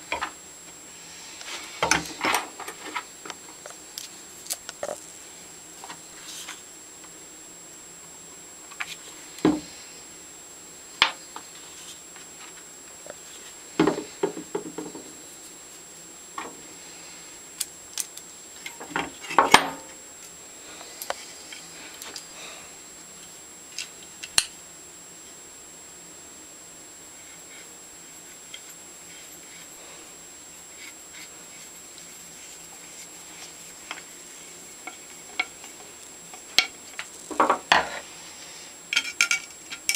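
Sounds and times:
small metal pieces clicking and clinking: 0:38.9 - 0:39.9.

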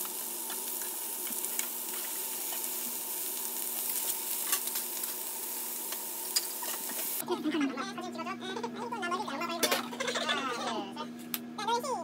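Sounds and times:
beef sizzling in a frying pan: 0:00.0 - 0:07.2.

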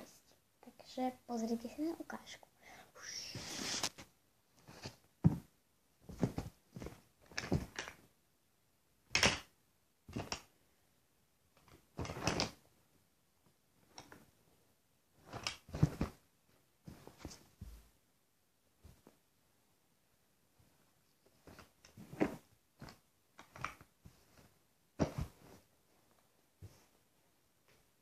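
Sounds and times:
fabric rustling and handling: 0:03.3 - 0:08.1, 0:11.6 - 0:12.7, 0:15.1 - 0:18.0, 0:20.5 - 0:28.0.

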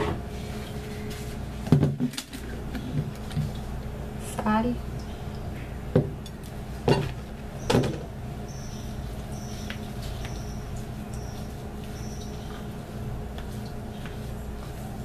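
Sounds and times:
mixing in a tub: 0:06.4 - 0:15.0.

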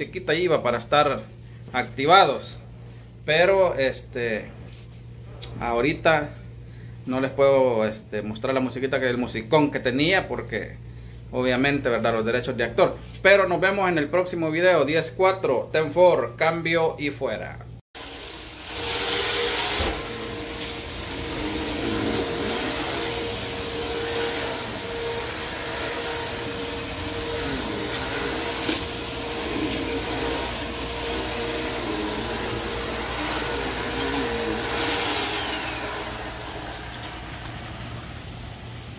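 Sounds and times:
mechanical motor whine: 0:18.0 - 0:38.0
rain on pavement: 0:37.2 - 0:38.9.

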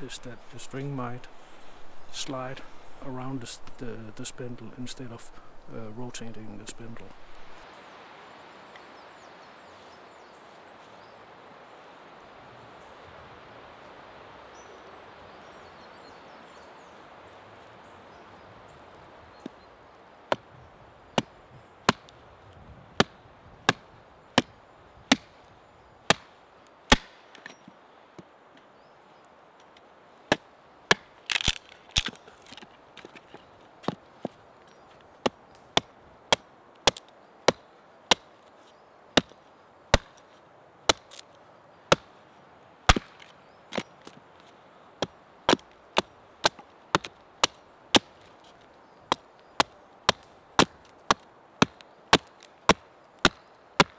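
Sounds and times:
hatchet chopping wood: 0:21.2 - 0:22.2, 0:23.0 - 0:25.3, 0:26.1 - 0:26.3, 0:26.9 - 0:27.5, 0:30.3 - 0:32.6, 0:35.2 - 0:38.3, 0:39.2 - 0:40.2, 0:40.9 - 0:41.2, 0:41.9 - 0:42.1, 0:42.9 - 0:43.9, 0:45.0 - 0:48.2, 0:49.1 - 0:53.9
wood splintering crackle: 0:30.9 - 0:33.4, 0:40.9 - 0:41.3.

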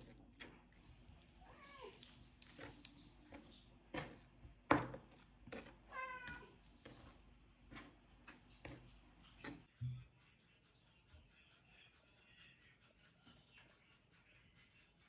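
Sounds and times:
knife chopping on cutting board: 0:02.5 - 0:09.7
cat meowing: 0:05.9 - 0:06.6.

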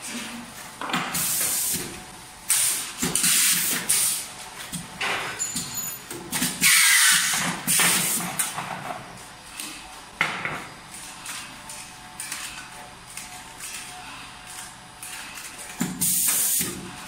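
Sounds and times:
machine hissing: 0:15.9 - 0:16.9.

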